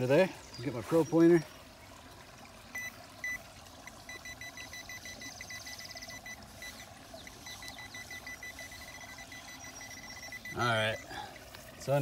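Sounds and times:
creek trickling: 0.0 - 12.0
metal detector pinpointer beeping: 2.8 - 11.1.

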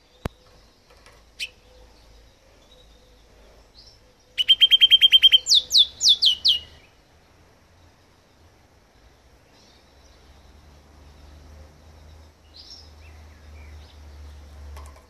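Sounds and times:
finch singing: 0.0 - 7.0.

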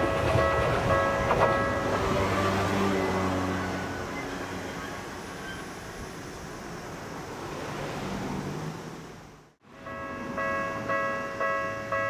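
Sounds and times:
level crossing warning bell: 0.0 - 4.2, 9.7 - 12.0
train running: 0.0 - 9.2.

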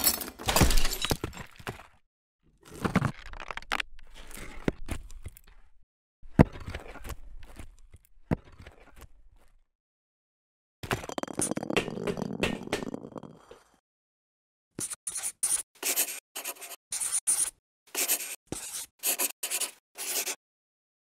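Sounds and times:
marker squeaking on whiteboard: 14.8 - 20.4.

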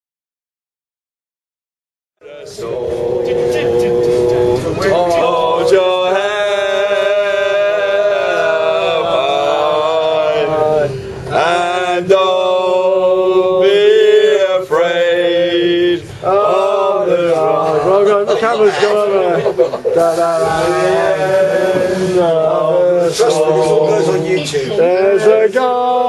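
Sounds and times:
group of men chanting: 2.2 - 26.0.

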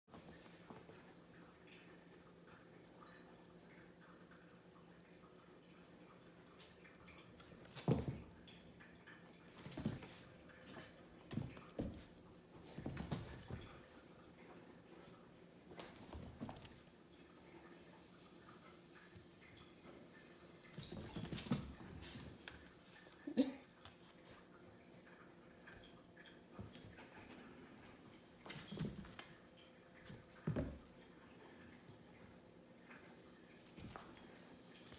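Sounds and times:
electronic bird chirping toy: 2.9 - 3.7, 4.4 - 6.0, 6.9 - 8.6, 9.4 - 9.7, 11.5 - 12.0, 12.8 - 13.7, 16.2 - 16.5, 17.2 - 17.5, 18.2 - 23.0, 23.6 - 24.4, 27.3 - 28.0, 30.2 - 31.1, 31.9 - 34.6.

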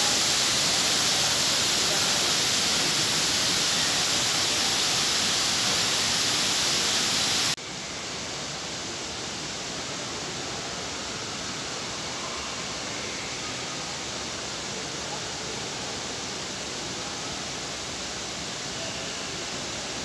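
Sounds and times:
water curtain hissing: 0.0 - 7.6.

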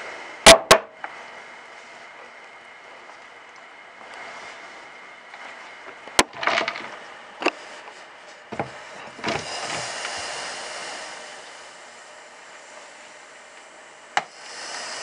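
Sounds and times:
rustling hiss: 9.2 - 15.0.

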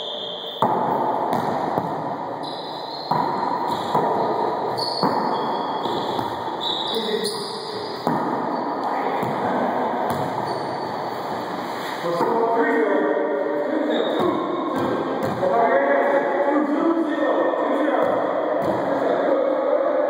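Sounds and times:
ball smacks echoing in court: 0.6 - 2.2, 3.0 - 6.5, 7.8 - 10.5, 14.2 - 15.6, 18.0 - 19.0.

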